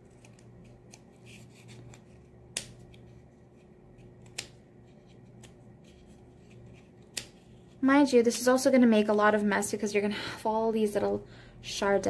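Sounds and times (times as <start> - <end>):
scissors snipping: 2.5 - 3.0, 4.0 - 4.6, 7.0 - 7.4.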